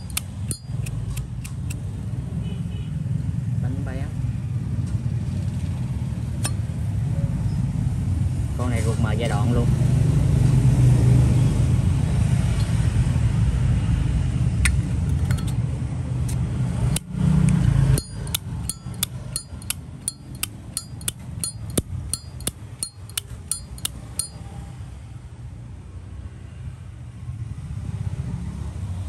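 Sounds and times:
road traffic rumble: 0:00.0 - 0:29.0
lighter lid clicking open and shut: 0:18.0 - 0:24.3.

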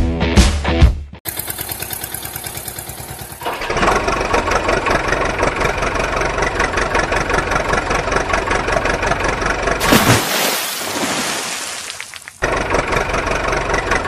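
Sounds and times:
vehicle engine idling: 0:01.3 - 0:09.8, 0:12.3 - 0:14.0.

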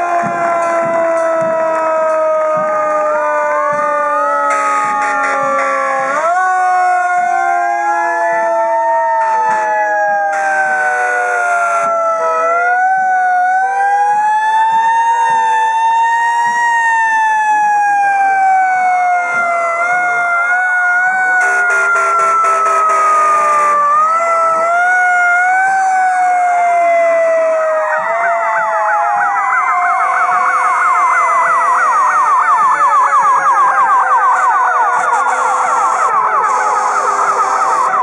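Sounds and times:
fire truck sirens wailing: 0:00.0 - 0:38.0
harsh noisy horn blast: 0:04.5 - 0:05.8, 0:21.4 - 0:23.8.

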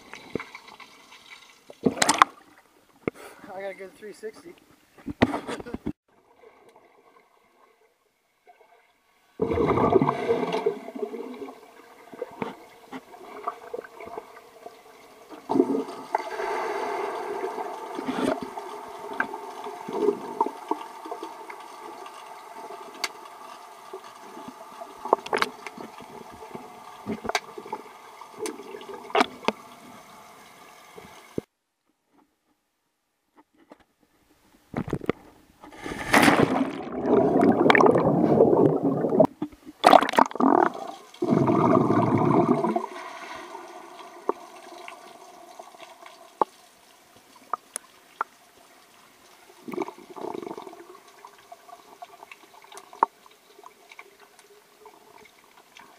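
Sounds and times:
underwater bubbling and gurgling: 0:06.1 - 0:31.4, 0:35.7 - 0:55.9
rush of bubbling water: 0:09.4 - 0:30.1, 0:35.7 - 0:46.7, 0:49.5 - 0:53.1.

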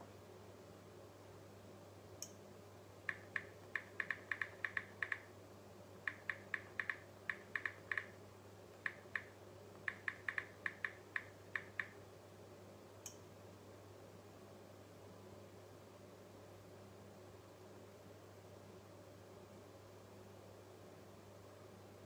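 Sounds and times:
phone keyboard taps: 0:03.1 - 0:05.3, 0:06.1 - 0:08.1, 0:08.9 - 0:11.9.

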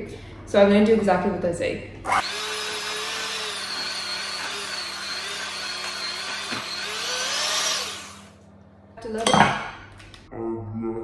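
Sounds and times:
electric hand mixer whining: 0:02.1 - 0:08.4.

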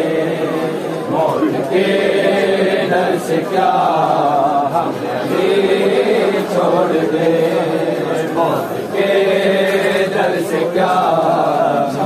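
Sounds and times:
men chanting in unison: 0:00.0 - 0:12.0.

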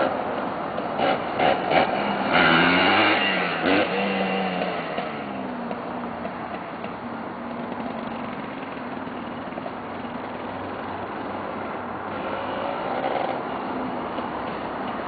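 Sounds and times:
quad bike engine running: 0:00.0 - 0:15.0.

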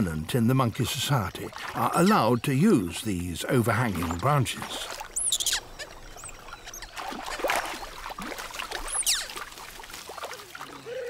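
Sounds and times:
water splashing: 0:00.0 - 0:11.0
monkey high-pitched calls: 0:05.2 - 0:07.4, 0:08.9 - 0:09.4.

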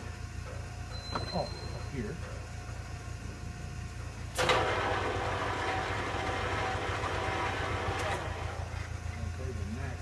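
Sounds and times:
lathe running with gear whine: 0:00.0 - 0:10.0.

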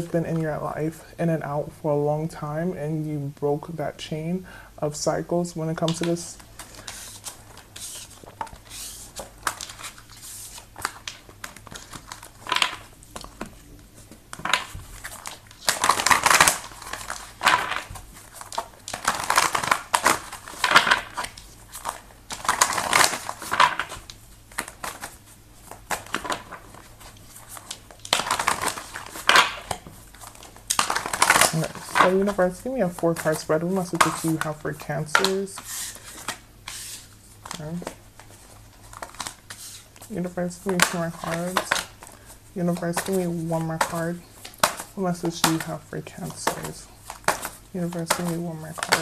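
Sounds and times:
cards being shuffled: 0:05.6 - 0:49.0.

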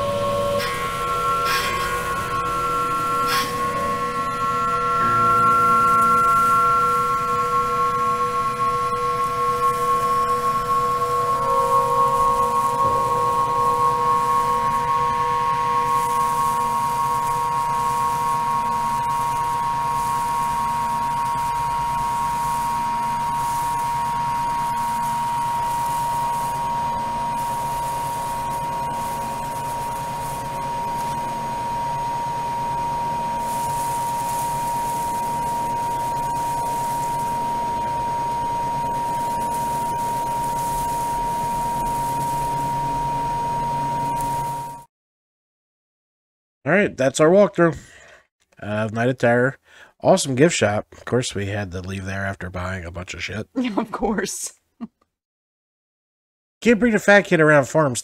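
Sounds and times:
high-pitched sine tone: 0:00.0 - 0:44.9.

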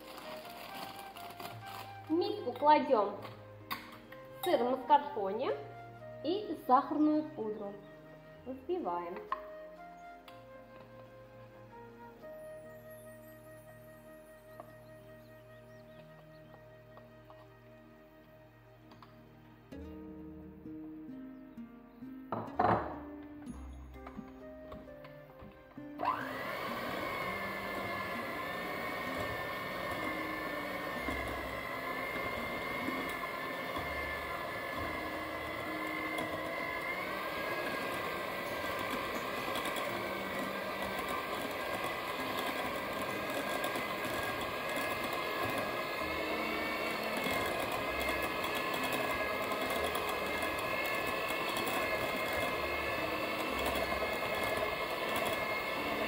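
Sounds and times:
electric hand mixer whirring: 0:00.0 - 0:09.6, 0:26.0 - 0:56.0.

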